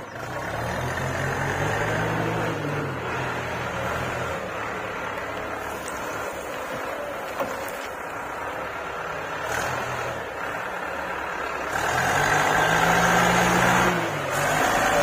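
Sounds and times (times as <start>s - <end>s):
diesel engine revving: 0.0s - 15.0s.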